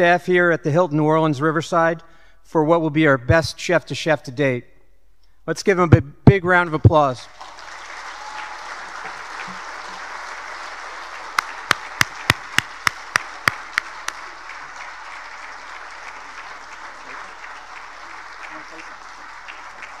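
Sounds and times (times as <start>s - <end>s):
crowd applauding: 7.2s - 20.0s
loud sharp claps close by: 7.4s - 20.0s.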